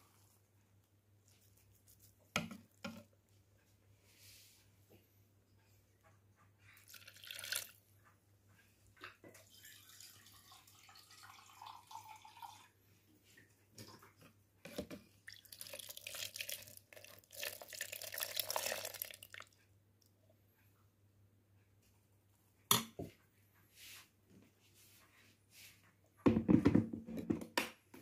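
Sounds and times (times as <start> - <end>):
liquid splashing and dripping in pot: 6.8 - 7.8, 15.2 - 19.6.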